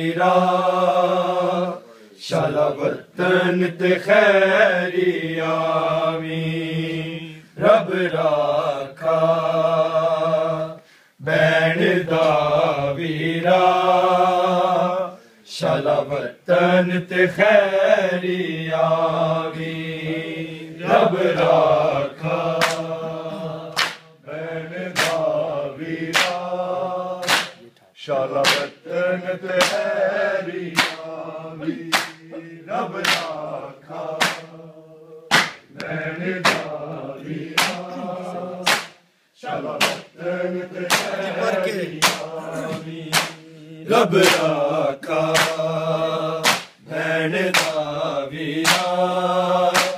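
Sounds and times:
men chanting in unison: 0.0 - 49.9
hand slaps on chest: 22.6 - 22.9, 23.8 - 24.1, 25.0 - 25.3, 26.1 - 26.4, 27.2 - 27.6, 28.4 - 28.7, 29.5 - 29.9, 30.7 - 31.1, 31.9 - 32.3, 33.0 - 33.4, 34.2 - 34.5, 35.3 - 36.8, 37.6 - 37.9, 38.6 - 39.0, 39.8 - 40.1, 40.9 - 41.2, 41.9 - 43.4, 45.4 - 45.6, 46.4 - 46.8, 47.5 - 47.8, 48.6 - 48.9.

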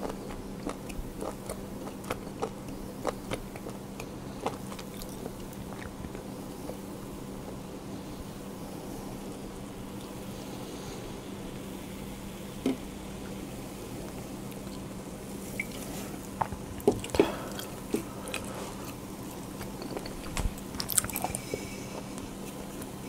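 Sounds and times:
steady low hum: 0.0 - 23.0
wet mouth sounds: 15.6 - 22.6.

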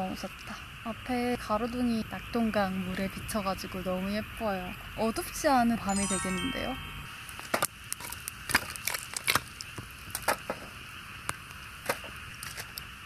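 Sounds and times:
fire pops and snaps: 7.9 - 10.6, 11.2 - 13.0.

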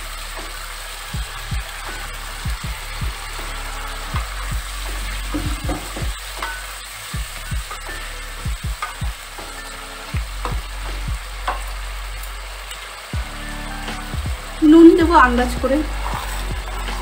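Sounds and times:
curry sizzling in a pan: 0.0 - 17.0
spatula knocking and scraping pan: 4.2 - 9.6.

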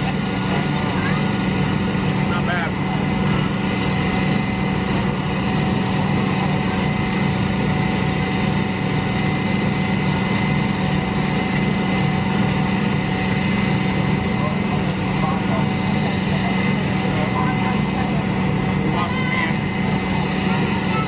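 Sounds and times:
engine droning: 0.0 - 21.0.

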